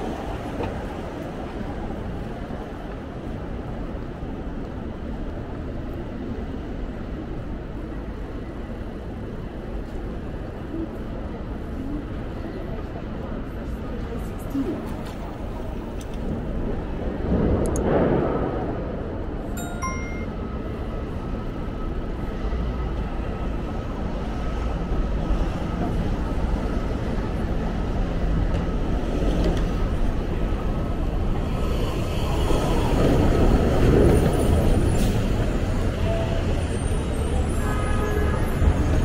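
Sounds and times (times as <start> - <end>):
street traffic: 0.0 - 39.0
faint steady high tone: 19.6 - 21.0.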